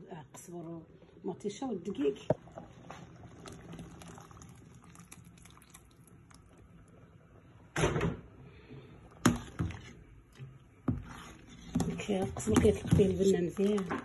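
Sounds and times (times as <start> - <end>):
soup bubbling: 2.3 - 7.6, 8.4 - 12.0.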